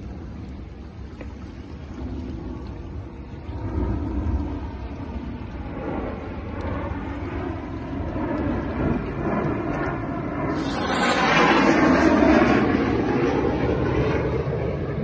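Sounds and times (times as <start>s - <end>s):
jets flying overhead: 0.0s - 15.0s.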